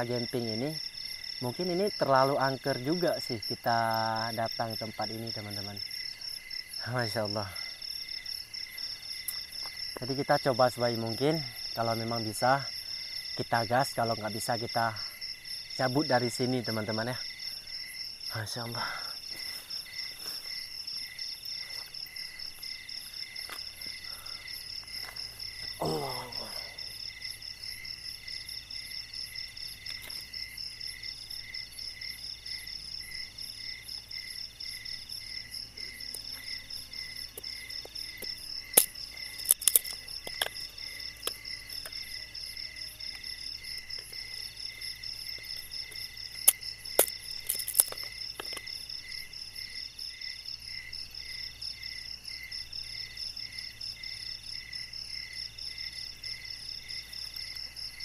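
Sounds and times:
crickets chirping: 0.0 - 58.0
sticks clicking and knocking: 37.8 - 40.6, 46.5 - 48.7.

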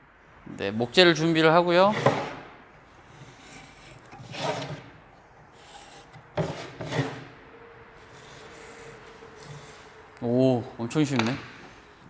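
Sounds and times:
pencil scratching on wood: 1.9 - 2.4, 3.0 - 7.3, 8.0 - 9.9
pencil scraping stroke: 3.0 - 4.9, 5.5 - 7.3, 8.0 - 10.0.

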